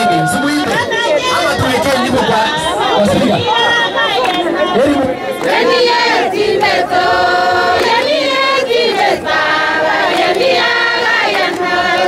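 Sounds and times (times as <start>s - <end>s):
group of voices singing: 0.6s - 12.0s.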